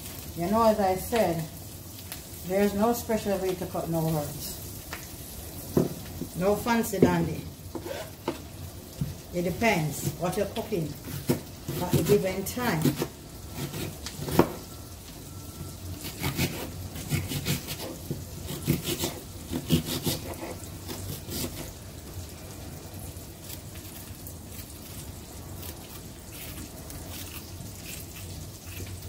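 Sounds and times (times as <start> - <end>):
butter sizzling in frying pan: 0.0 - 29.0.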